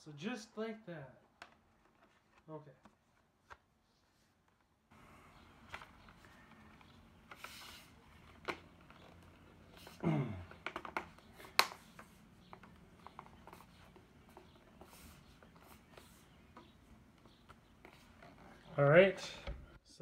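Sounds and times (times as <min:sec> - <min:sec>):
plastic case clicks and knocks: 0:10.5 - 0:11.8.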